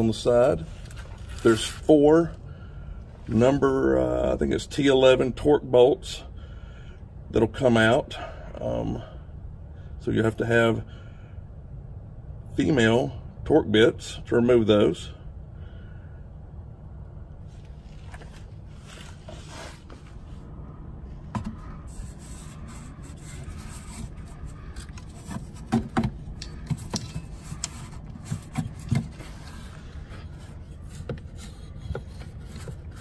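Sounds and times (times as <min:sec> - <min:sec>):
steady low hum: 0:00.0 - 0:33.0
hand tools clicking and scraping: 0:21.4 - 0:33.0.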